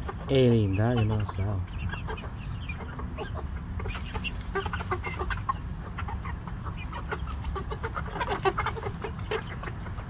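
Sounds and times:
chicks clucking and peeping: 0.0s - 10.0s.

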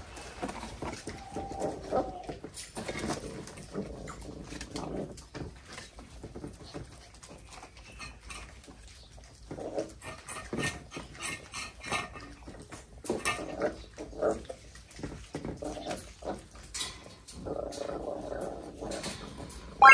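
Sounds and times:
puppies chewing: 0.0s - 19.9s
puppy noises: 0.0s - 19.9s.

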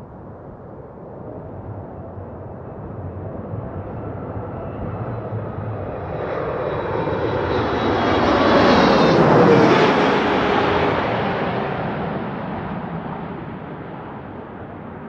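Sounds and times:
jet engines roaring overhead: 0.1s - 15.0s.

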